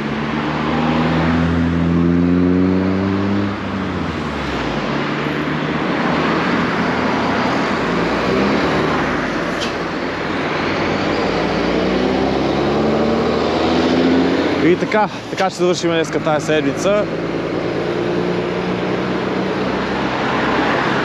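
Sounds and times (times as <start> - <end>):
cars driving past: 0.0 - 21.0
truck engine pulling away: 6.3 - 21.0.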